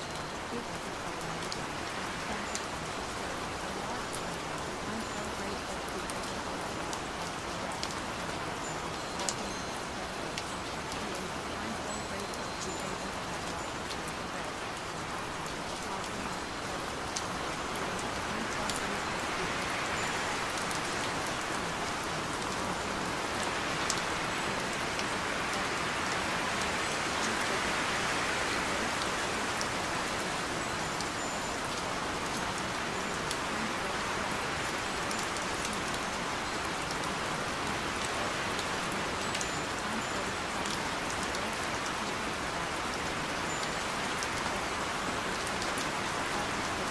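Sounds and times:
steady rain: 0.0 - 46.9.

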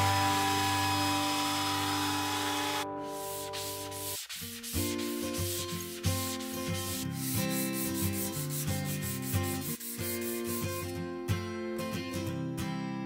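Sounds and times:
sanding sponge rubbing wood: 1.5 - 10.9
acoustic guitar music: 2.8 - 13.0.

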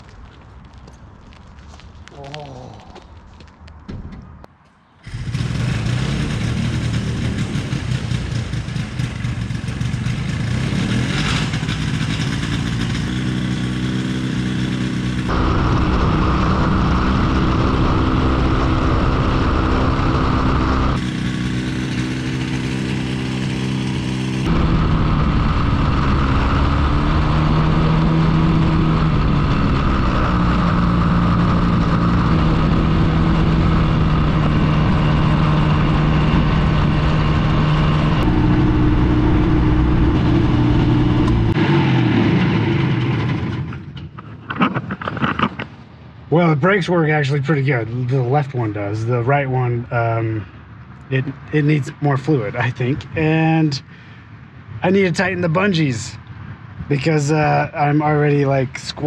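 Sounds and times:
small aircraft engine running: 5.0 - 45.9.

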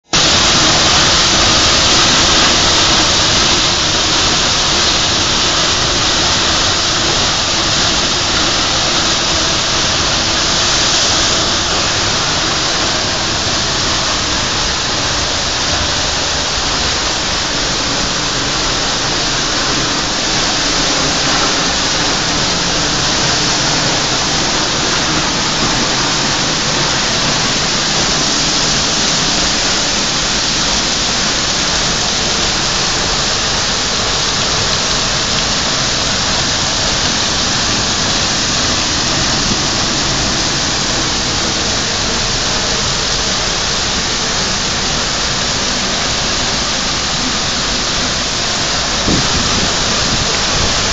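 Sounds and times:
waterfall rushing: 0.0 - 50.9.

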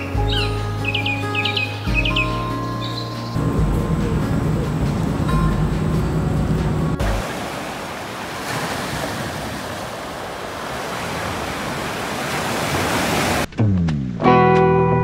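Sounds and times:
wind: 0.0 - 14.7
waves washing over pebble beach: 7.2 - 13.5.

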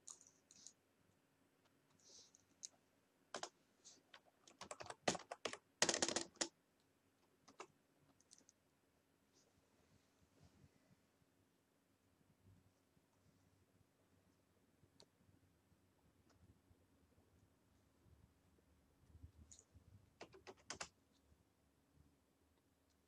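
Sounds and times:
computer keyboard typing: 3.3 - 3.6, 4.2 - 6.5, 20.2 - 21.0.

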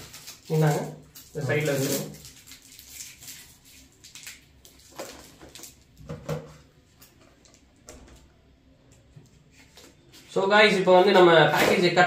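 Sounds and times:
cardboard parcel being opened: 0.0 - 6.0.

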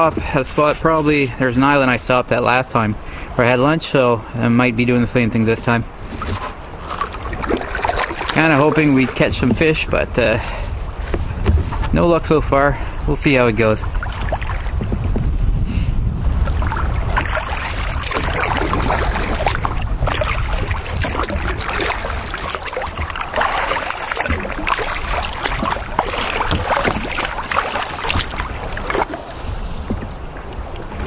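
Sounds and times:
wind rumble on microphone: 4.7 - 31.0
paddle splashing in water: 5.9 - 12.0, 13.6 - 15.4, 16.2 - 31.0.

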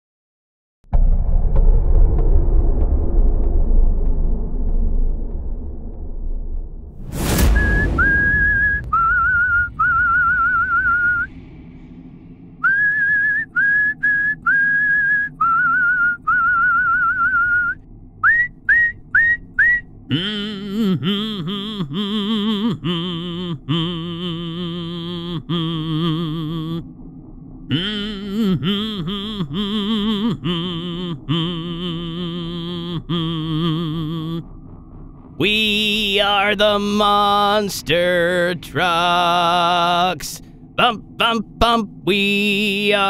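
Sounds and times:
whistled tune with vibrato: 7.4 - 11.3, 12.6 - 20.0.

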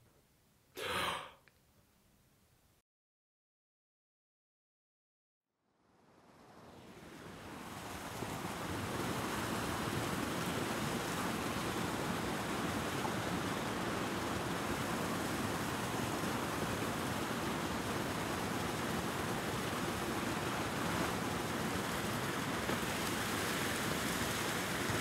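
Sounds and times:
fountain water splashing: 6.7 - 25.0.

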